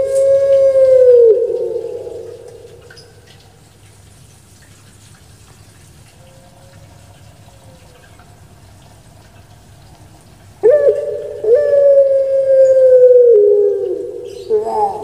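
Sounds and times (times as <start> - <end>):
dove cooing: 0.0 - 3.0, 10.6 - 15.0.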